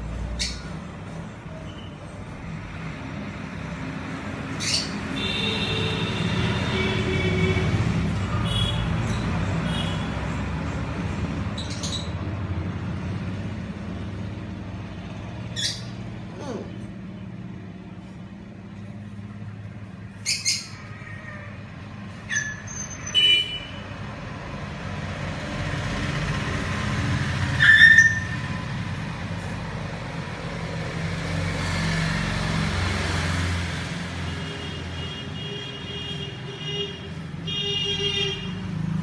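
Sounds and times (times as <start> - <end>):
road traffic rumble: 0.0 - 39.0
vehicle passing: 2.2 - 22.3, 23.8 - 39.0
high chirps or squeaks: 15.5 - 16.0, 20.2 - 21.2, 22.2 - 23.2, 27.5 - 28.5.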